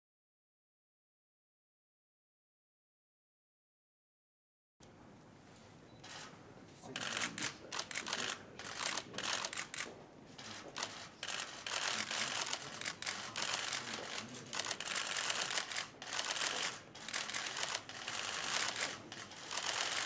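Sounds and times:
camera shutters clicking: 0:07.0 - 0:20.0.

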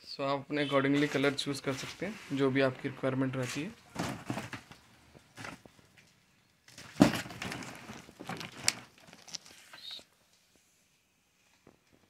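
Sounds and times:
cardboard and plastic rustling: 0:00.9 - 0:02.7, 0:03.3 - 0:10.0.

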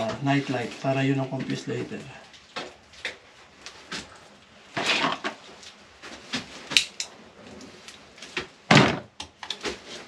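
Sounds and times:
tape and wiring handling clicks: 0:06.7 - 0:07.1.

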